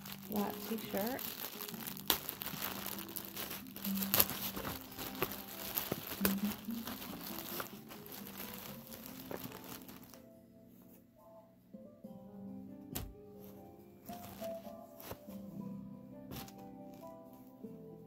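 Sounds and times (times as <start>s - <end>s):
plastic bag crinkling: 0.0s - 10.2s, 14.1s - 15.3s.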